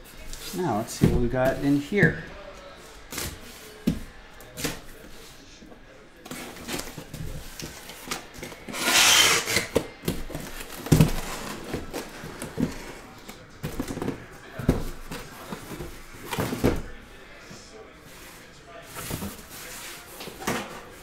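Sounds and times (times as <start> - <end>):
boxes knocking and rustling: 0.1 - 2.3, 3.1 - 5.3, 6.2 - 17.6, 18.2 - 21.0
cardboard and packing tape rasp: 6.3 - 12.8.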